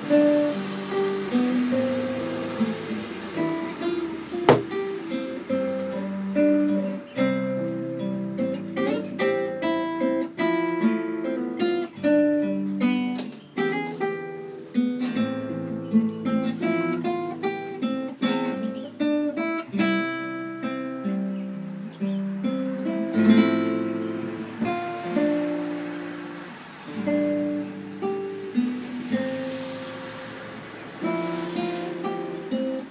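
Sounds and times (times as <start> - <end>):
strummed guitar chord: 0.0 - 11.6, 22.4 - 32.9
classical guitar fingerstyle melody: 0.0 - 32.9.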